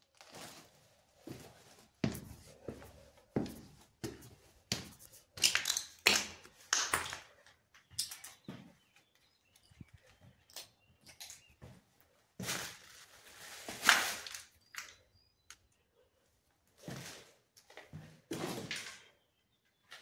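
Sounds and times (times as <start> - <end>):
footsteps crunching on rubble: 1.2 - 8.7.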